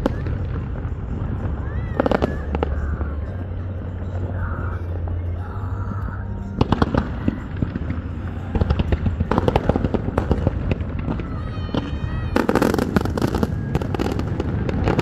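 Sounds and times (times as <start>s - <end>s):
fireworks bangs and crackles: 0.0s - 5.3s, 6.4s - 15.0s
low steady rumble: 0.0s - 11.2s.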